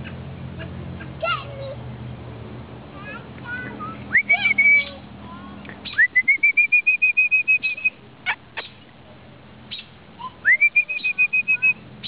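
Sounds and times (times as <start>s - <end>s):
rapid high chirps: 5.8s - 8.8s, 9.7s - 11.8s
rising whistle: 6.0s - 8.0s, 10.4s - 11.8s.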